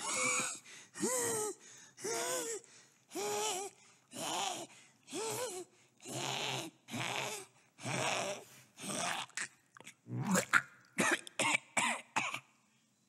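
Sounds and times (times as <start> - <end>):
cartoon cat coughing and retching: 8.9 - 12.5.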